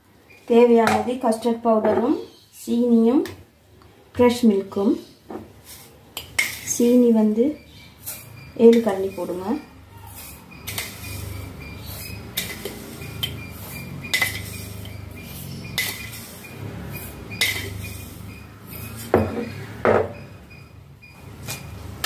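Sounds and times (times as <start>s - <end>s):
metal spoon clinking on glass and steel: 17.4s - 18.0s.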